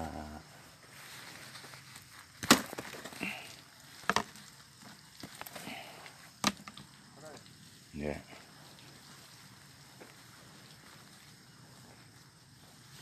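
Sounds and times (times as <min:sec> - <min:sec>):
plants rustling: 0:00.0 - 0:13.0
sharp cracks: 0:02.4 - 0:03.4.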